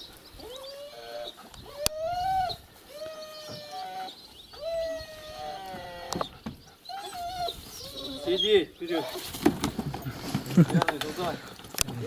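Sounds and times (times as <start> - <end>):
dog whining: 0.4 - 8.6.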